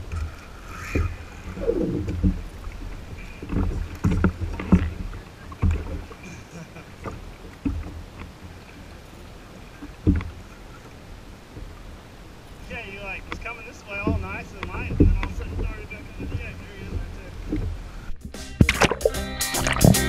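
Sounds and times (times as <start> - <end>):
water slapping kayak hull: 0.0 - 20.0
knocks and thumps: 14.0 - 20.0.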